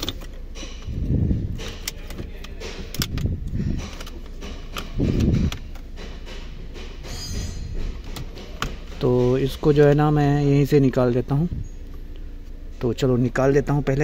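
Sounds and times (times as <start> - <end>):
dull low thumps: 0.4 - 10.5.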